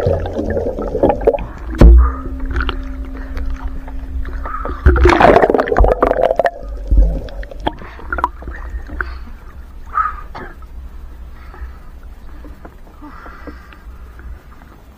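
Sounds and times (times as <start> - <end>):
steady low hum underwater: 0.0 - 14.9
water splashing and gurgling: 0.0 - 14.9
heavy low thumps: 0.6 - 7.8.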